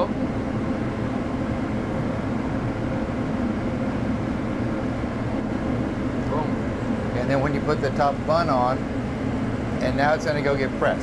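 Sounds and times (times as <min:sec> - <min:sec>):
exhaust fan droning: 0:00.0 - 0:11.0
faint steady hum: 0:00.0 - 0:11.0.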